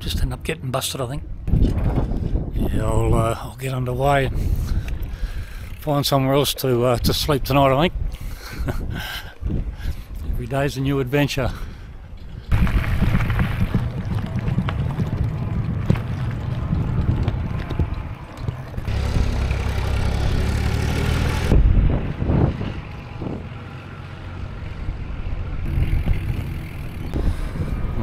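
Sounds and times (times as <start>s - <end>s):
wind rumbling on microphone: 1.2s - 28.0s
bicycle tyres rolling on gravel: 12.0s - 28.0s.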